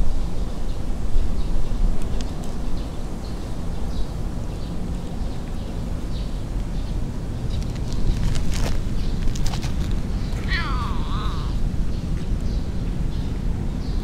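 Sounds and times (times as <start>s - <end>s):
low outdoor rumble: 0.0s - 14.0s
faint bird chirps: 10.2s - 12.7s.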